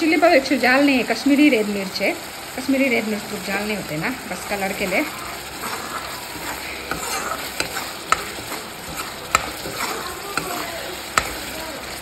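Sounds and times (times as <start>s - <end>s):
spices sizzling in a pan: 0.0s - 12.0s
spatula stirring: 1.9s - 12.0s
spatula knocking on pan: 5.6s - 12.0s.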